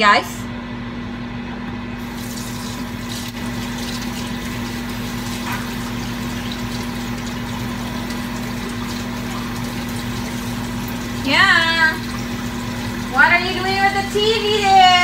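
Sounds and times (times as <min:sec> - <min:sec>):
steady low hum: 0:00.0 - 0:15.0
hands washing under water: 0:02.0 - 0:13.2
kitchen tap running: 0:02.0 - 0:15.0.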